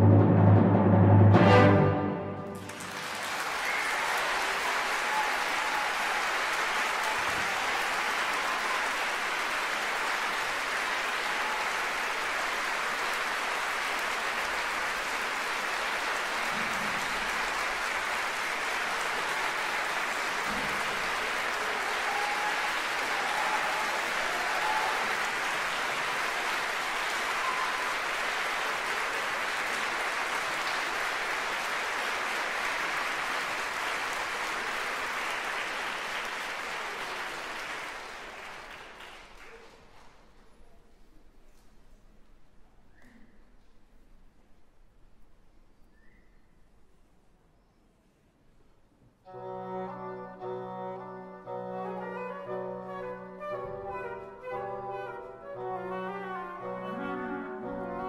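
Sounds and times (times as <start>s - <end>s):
audience applauding: 2.4s - 40.8s.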